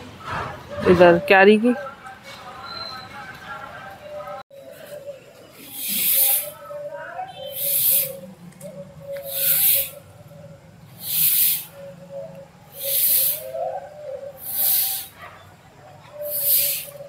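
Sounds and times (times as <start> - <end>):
rhythmic swishing strokes in garden: 4.5 - 17.0.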